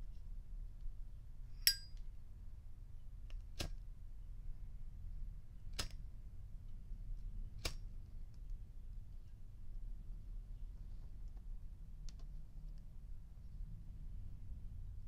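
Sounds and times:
lighter lid clinking open: 1.7 - 1.9
lighter flint wheel strikes: 1.7 - 2.0.

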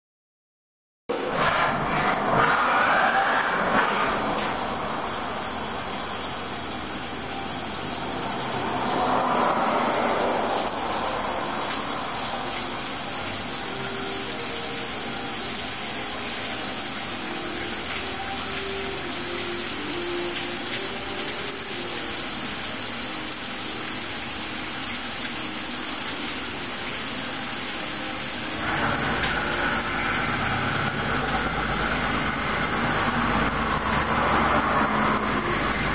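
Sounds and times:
milling machine cutting: 1.1 - 13.6, 28.5 - 35.9
coolant spray hissing: 1.1 - 35.9.

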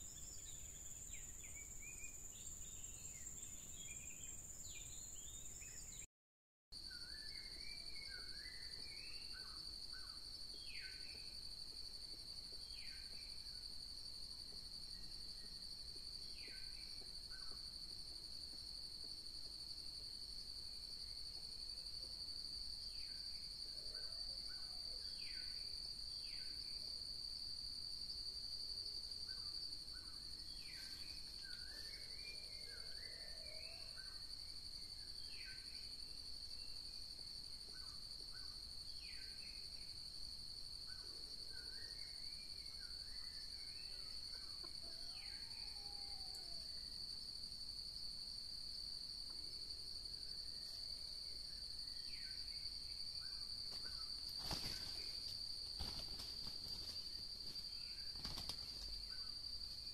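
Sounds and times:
high-pitched insect drone: 54.1 - 57.6.

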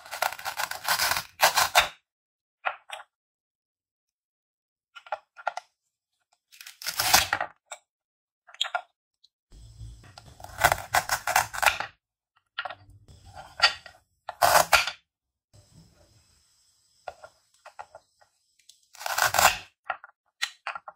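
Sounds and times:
velcro ripping: 0.0 - 1.8, 6.5 - 7.4.

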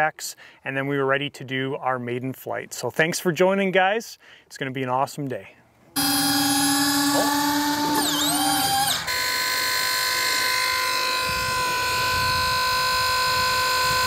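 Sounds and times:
electric fuel pump whining: 6.0 - 14.0.

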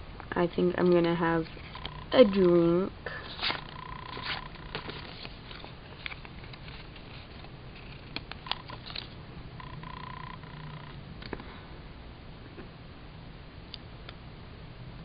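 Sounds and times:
faint steady tone: 0.2 - 5.5, 7.0 - 12.4
paper sticker sheet rustling: 3.2 - 9.1.

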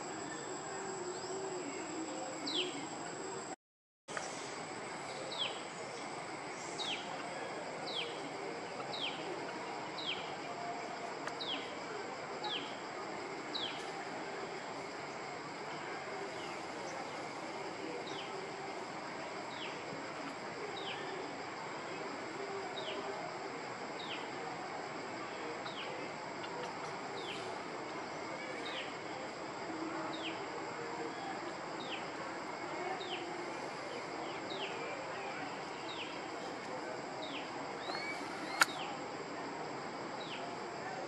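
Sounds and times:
outdoor background noise: 0.0 - 41.0
bird whistling falling note: 37.9 - 38.9.

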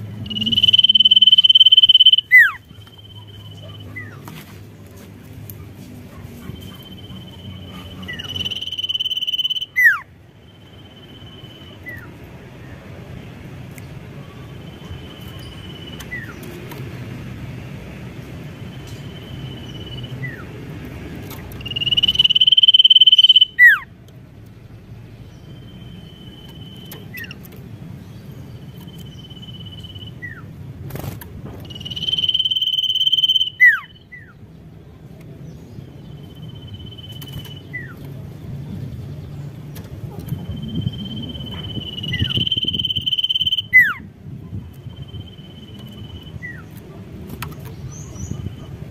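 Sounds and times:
bird singing whistled notes: 0.2 - 4.2, 6.6 - 12.1, 21.5 - 23.9, 28.6 - 30.5, 31.6 - 34.4, 40.4 - 44.0.

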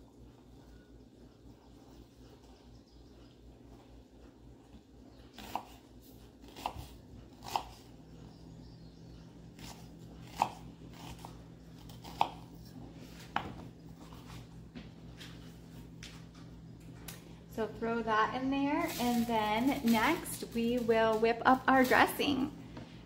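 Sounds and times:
knife chopping on cutting board: 6.4 - 7.8, 9.6 - 13.7.

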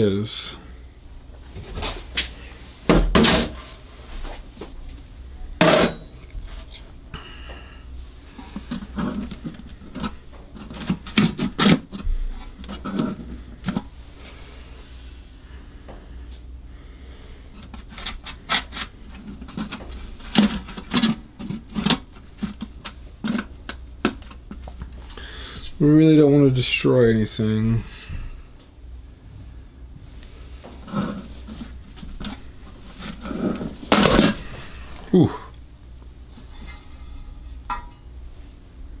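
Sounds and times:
tools clunking on workbench: 5.6 - 6.1.

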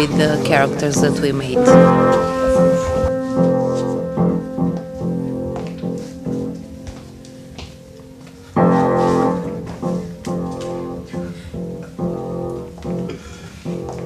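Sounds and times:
piano chords and notes: 0.0 - 14.0.

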